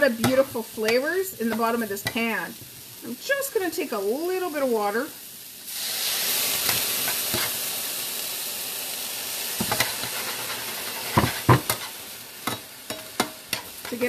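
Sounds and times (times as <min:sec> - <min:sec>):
water hissing in hot pan: 0:00.0 - 0:14.0
tongs clicking on pan: 0:00.2 - 0:02.2, 0:11.6 - 0:14.0.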